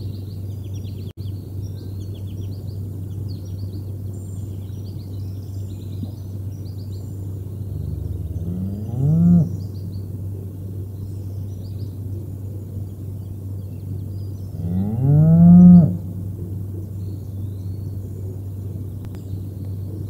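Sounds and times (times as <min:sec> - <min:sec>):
small birds chirping: 0:00.0 - 0:20.0
steady low hum: 0:00.0 - 0:20.0
cow mooing: 0:07.7 - 0:09.6, 0:14.6 - 0:16.1.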